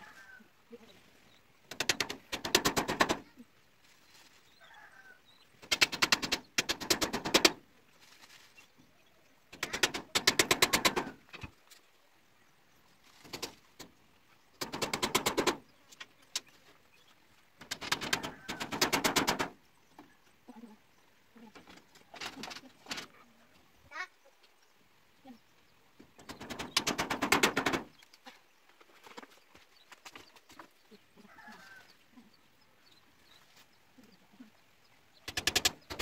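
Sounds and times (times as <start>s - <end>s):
tool knocking on bamboo: 1.7s - 3.2s, 5.7s - 7.6s, 9.6s - 11.2s, 14.6s - 15.6s, 17.6s - 19.6s, 26.2s - 27.9s.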